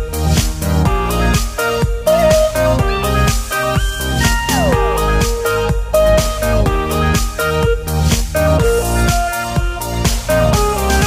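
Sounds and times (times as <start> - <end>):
electronic music with steady beat: 0.0 - 11.0.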